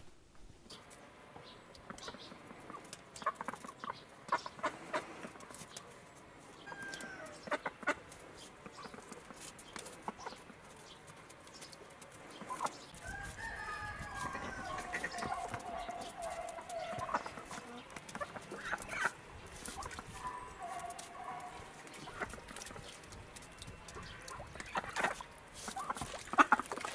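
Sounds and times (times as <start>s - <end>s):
ducks quacking: 1.8s - 5.4s, 6.8s - 9.4s, 14.2s - 23.1s, 23.9s - 26.9s.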